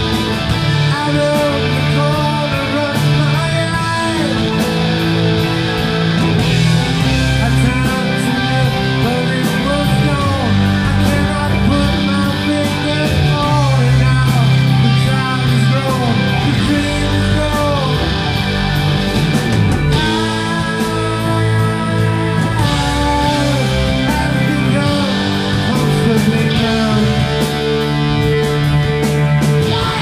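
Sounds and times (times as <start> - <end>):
rock band playing live: 0.0 - 30.0.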